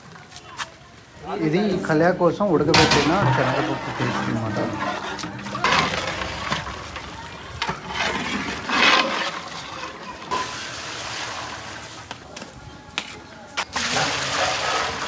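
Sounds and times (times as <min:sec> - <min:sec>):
ladle stirring thick mixture: 0:02.7 - 0:12.0
thick mixture sloshing: 0:02.7 - 0:12.0.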